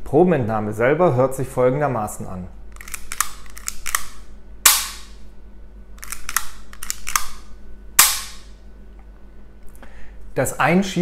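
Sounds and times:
biopsy gun cocking clicks: 2.8s - 5.1s, 6.0s - 7.4s
biopsy gun firing snap: 2.8s - 5.2s, 8.0s - 8.5s.

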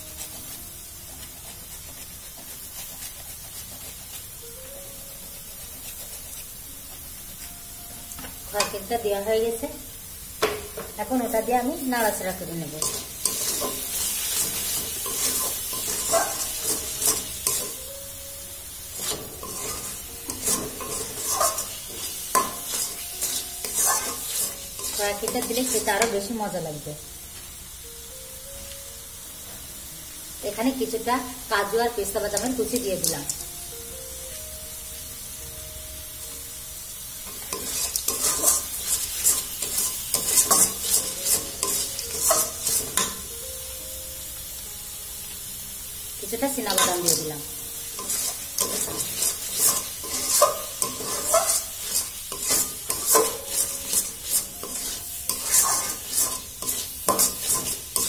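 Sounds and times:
metal spatula scraping a pan: 0.0s - 4.3s, 12.0s - 17.9s, 18.9s - 26.3s, 37.2s - 43.3s, 46.7s - 47.3s, 47.9s - 58.0s
light sizzle of frying: 0.0s - 58.0s.

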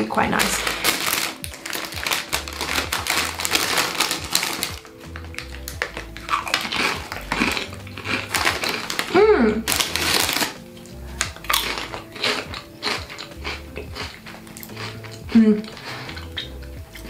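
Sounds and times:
foil packet rustling: 0.0s - 13.3s
crisps being crunched: 0.0s - 17.0s.

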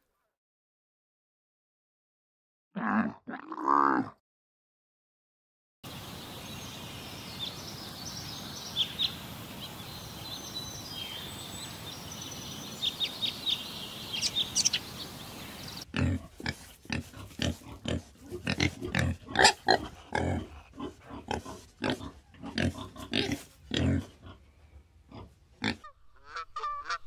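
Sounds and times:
animal grunting: 2.8s - 4.2s, 15.8s - 24.5s
steady outdoor hiss: 5.9s - 25.6s.

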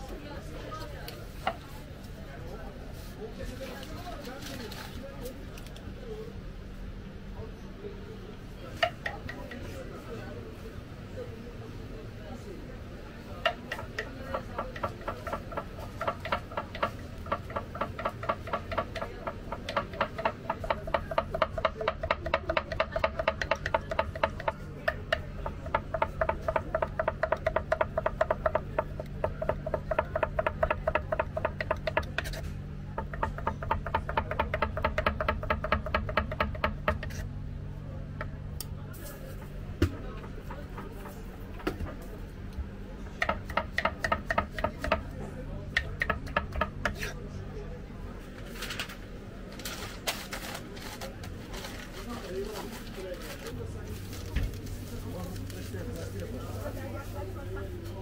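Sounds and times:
knife chopping on wooden board: 13.4s - 32.4s, 33.0s - 37.2s, 43.2s - 45.1s, 45.8s - 47.1s.

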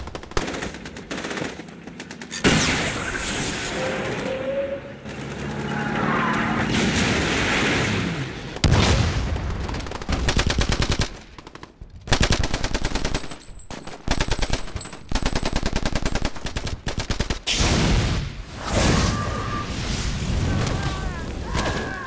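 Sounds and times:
machine-gun fire: 6.7s - 18.1s.

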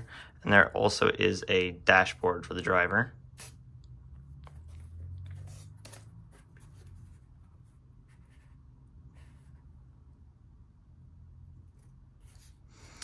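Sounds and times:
hands handling cardboard: 4.4s - 9.7s.

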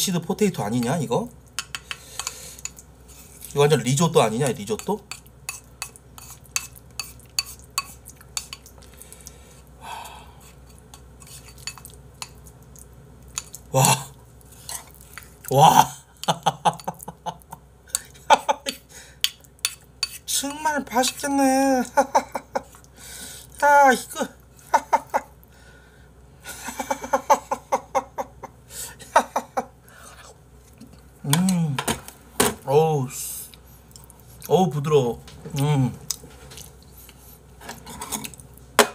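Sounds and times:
spoon stirring food in a bowl: 0.6s - 3.7s, 4.3s - 9.7s, 10.4s - 13.7s, 14.4s - 15.5s, 17.9s - 22.0s
spoon clicking and scraping bowl: 0.8s - 3.6s, 4.4s - 8.9s, 10.4s - 12.5s, 13.3s - 13.6s, 18.7s - 21.3s
man giggling: 15.6s - 18.9s, 21.8s - 22.8s, 24.6s - 25.4s, 26.4s - 29.8s.

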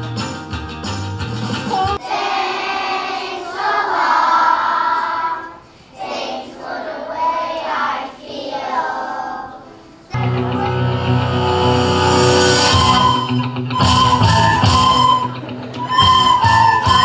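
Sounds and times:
children's choir singing: 1.8s - 13.2s
music with strong bass: 10.2s - 15.2s.

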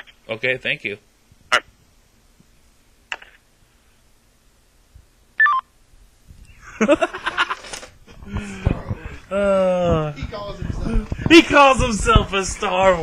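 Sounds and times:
two-pitch electronic telephone beep: 5.4s - 5.6s
breathy noisy voice: 8.1s - 11.3s.

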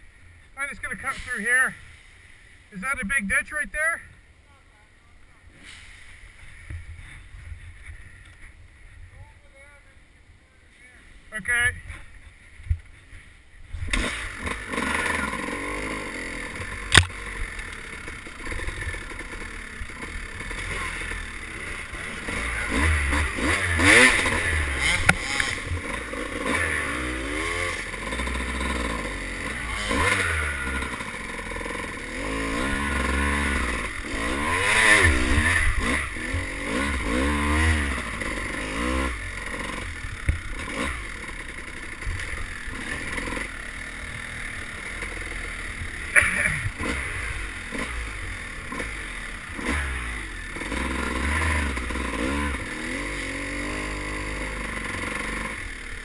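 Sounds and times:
dirt bike engine revving: 0.2s - 3.6s, 13.7s - 56.0s.

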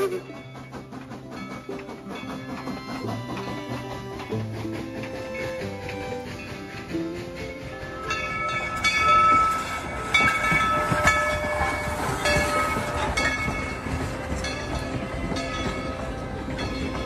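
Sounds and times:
steam train whistle: 0.0s - 0.7s
train rumble and clatter: 0.0s - 17.0s.

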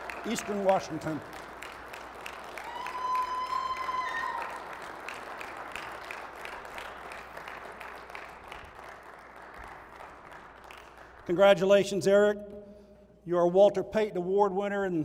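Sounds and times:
audience applauding: 0.0s - 11.5s
high-pitched cheer: 2.5s - 4.8s.

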